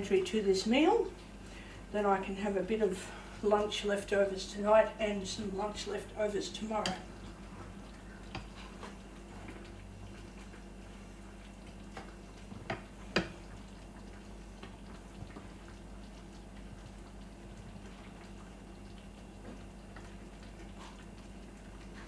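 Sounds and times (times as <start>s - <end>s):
low steady hum: 0.0s - 22.0s
stir fry sizzling in a pan: 0.0s - 22.0s.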